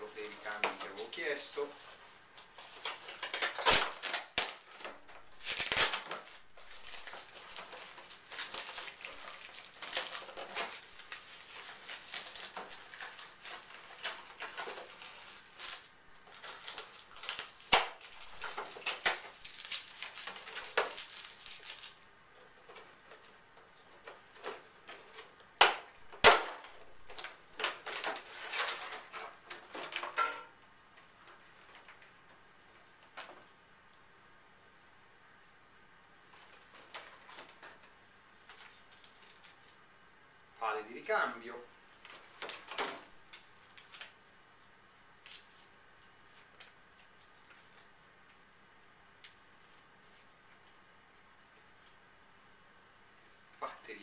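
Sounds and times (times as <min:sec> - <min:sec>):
foam and plastic rustling: 0:00.0 - 0:33.5, 0:36.2 - 0:39.8, 0:40.6 - 0:44.2.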